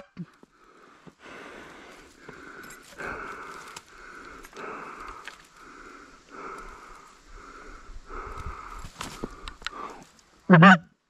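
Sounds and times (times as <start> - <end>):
goose honks: 10.5 - 10.9.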